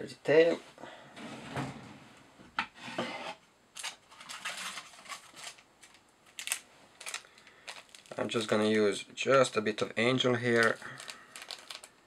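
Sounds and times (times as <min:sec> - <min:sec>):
materials and tools rubbing and scraping: 0:02.7 - 0:03.4.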